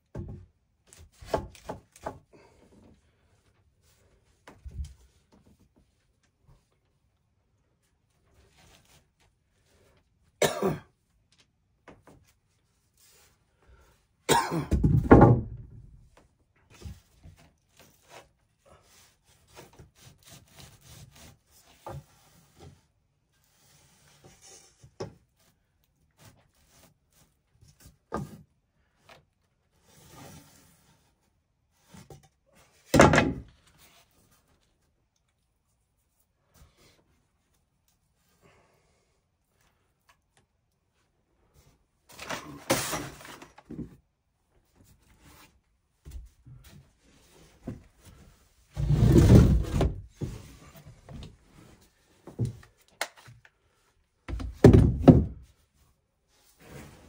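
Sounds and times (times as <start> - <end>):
wooden boards knocking on floor: 14.7 - 15.7, 54.3 - 55.4
lumber scraping and shuffling: 41.0 - 57.0.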